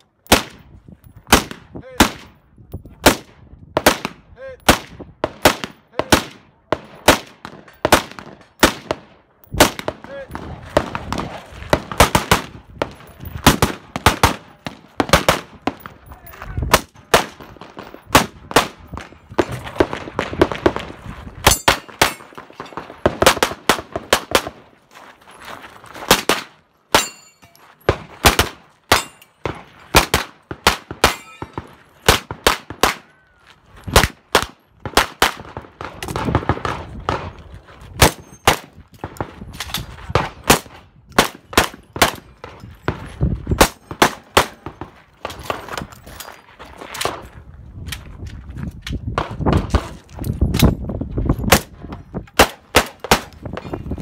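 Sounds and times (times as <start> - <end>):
rifle gunshots: 3.0 - 15.9, 16.7 - 24.6, 27.9 - 33.1
pistol gunshots: 3.0 - 16.0, 16.7 - 24.6, 26.1 - 27.3, 27.9 - 33.1, 33.9 - 37.4, 38.0 - 39.4, 40.1 - 42.3, 43.6 - 45.5, 52.4 - 53.4
bullets ringing steel targets: 21.4 - 23.0, 26.9 - 30.1, 30.9 - 32.2.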